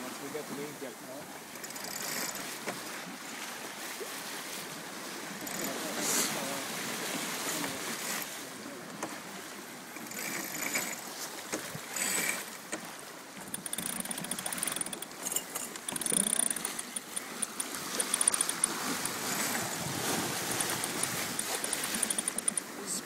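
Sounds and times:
water rushing along hull: 0:00.0 - 0:23.0
wind gusts: 0:01.3 - 0:23.0
fast light high ticks: 0:12.0 - 0:22.7.

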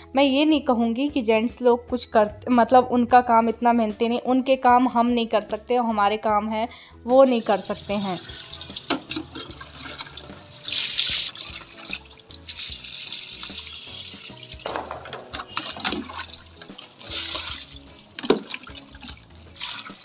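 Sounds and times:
water splashing into soil: 0:08.1 - 0:20.0.

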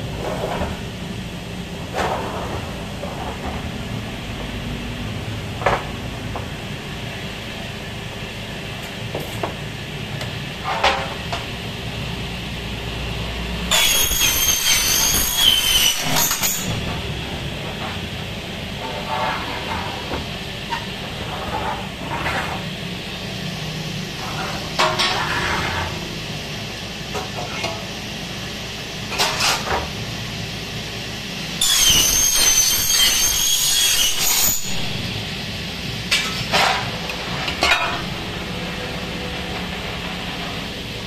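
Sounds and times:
power saw cutting aluminium: 0:13.7 - 0:17.1, 0:31.6 - 0:35.1.

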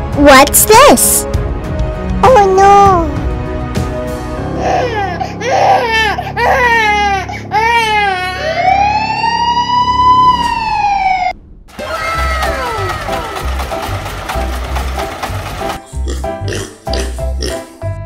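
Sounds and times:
siren wail: 0:08.2 - 0:13.2.

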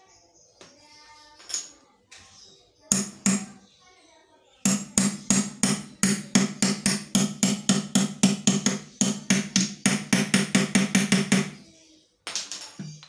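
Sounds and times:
hammer blows on metal: 0:02.9 - 0:03.6, 0:04.7 - 0:11.6.

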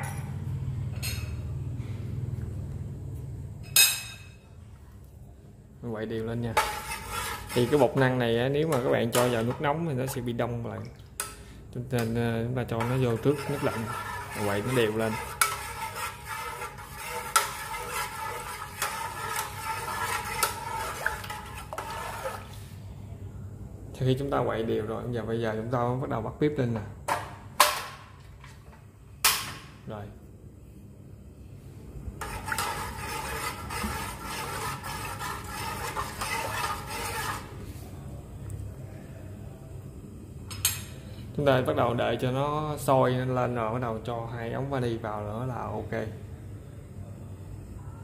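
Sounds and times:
metal spoon scraping a pot: 0:06.4 - 0:10.4, 0:11.2 - 0:22.6, 0:32.2 - 0:37.7.

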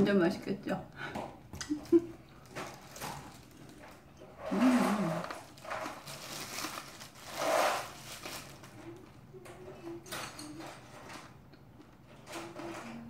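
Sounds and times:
plastic gloves crinkling: 0:01.9 - 0:09.2.

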